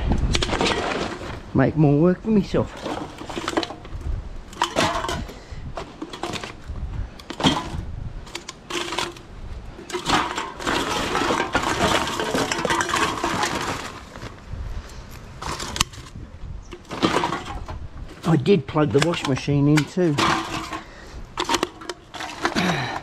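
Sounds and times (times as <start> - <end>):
cans and bottles clattering: 0.3 - 1.5, 2.6 - 6.6, 7.2 - 14.3, 15.4 - 16.1, 16.7 - 23.0
plastic bag rustling: 0.4 - 1.6, 2.6 - 6.6, 7.3 - 14.6.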